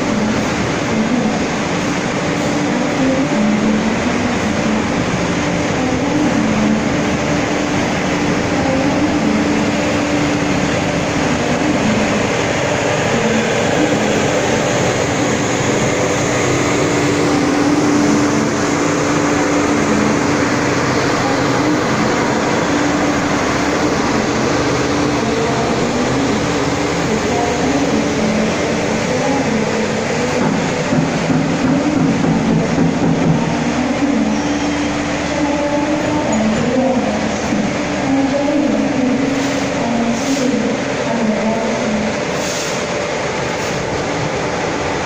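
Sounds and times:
generator engine hum: 0:00.0 - 0:45.0
train coaches rumbling past: 0:00.0 - 0:45.0.

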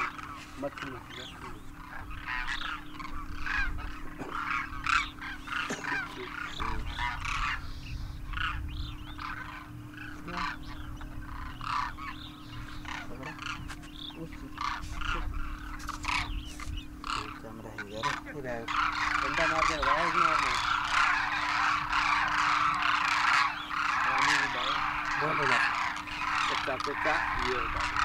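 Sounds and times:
flock of cranes calling: 0:00.0 - 0:28.0
low rumble: 0:06.2 - 0:17.2.

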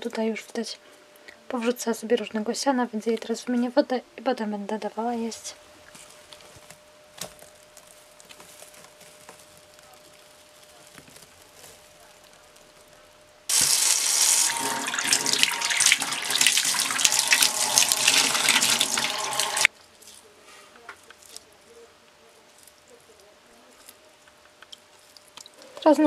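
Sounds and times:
tap water running into sink: 0:13.5 - 0:19.7
water splashing over dish: 0:13.5 - 0:19.7.

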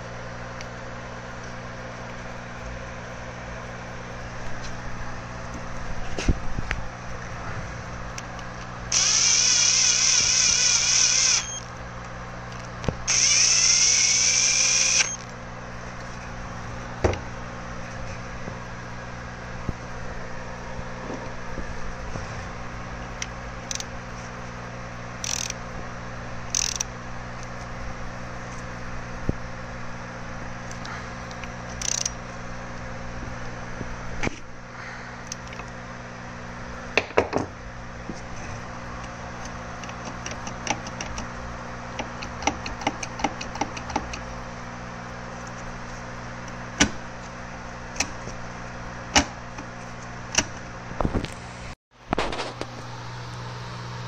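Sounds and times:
metallic clicks of tools: 0:25.2 - 0:25.6, 0:26.5 - 0:26.9, 0:30.7 - 0:32.2
low hum: 0:45.3 - 0:54.0.

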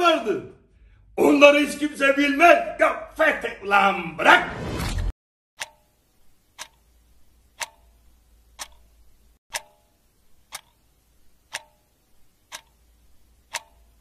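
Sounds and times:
clock ticking: 0:05.6 - 0:14.0.

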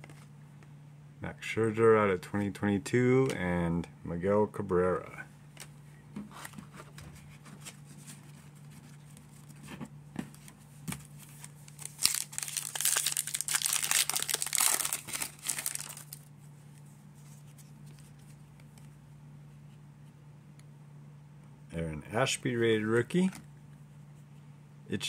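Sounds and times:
steady low hum: 0:00.0 - 0:25.0
foil wrapper crackling: 0:11.6 - 0:16.3.

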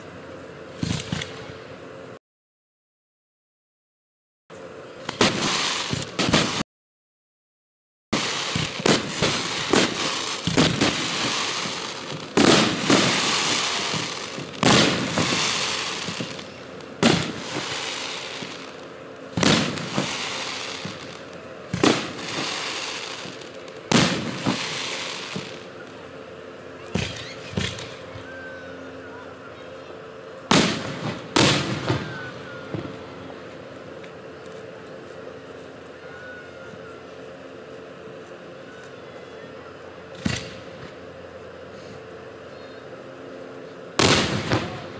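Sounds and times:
fireworks crackling: 0:00.7 - 0:01.6, 0:05.0 - 0:06.6, 0:08.1 - 0:28.2, 0:29.2 - 0:36.3, 0:43.8 - 0:44.9
fireworks bangs: 0:05.0 - 0:06.6, 0:08.1 - 0:25.8, 0:26.8 - 0:28.2, 0:30.5 - 0:34.0, 0:40.1 - 0:41.0, 0:44.0 - 0:44.9.

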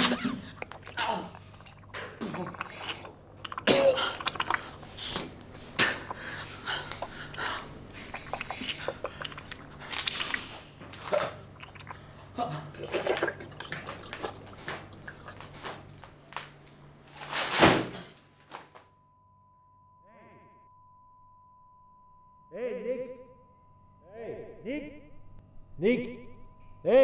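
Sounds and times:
wet squelching flesh: 0:00.0 - 0:05.2, 0:12.8 - 0:16.1
steady low hum: 0:00.0 - 0:17.1, 0:18.9 - 0:27.0.

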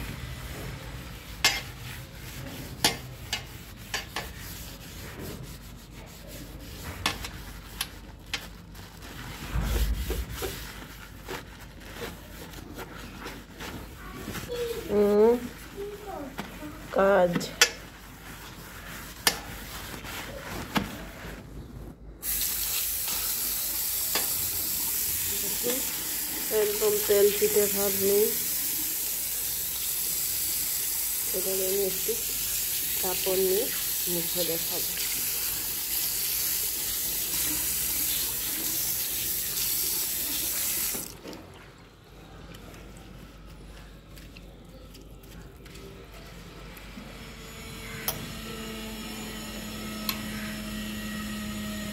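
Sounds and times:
hand rubbing basin: 0:00.0 - 0:22.4, 0:23.0 - 0:29.3
plastic bag scrubbing washbasin: 0:00.0 - 0:46.7
tap water running into basin: 0:22.2 - 0:41.8.

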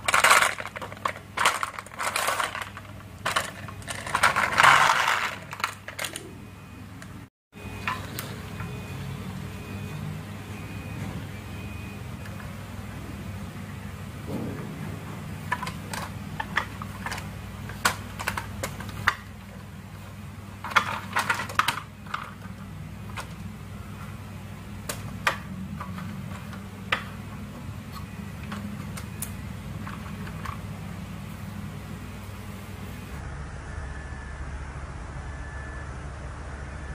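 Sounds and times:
plastic toy truck clicking and knocking: 0:00.0 - 0:06.2, 0:15.5 - 0:19.4, 0:20.6 - 0:23.4
steady low hum: 0:00.0 - 0:36.9.

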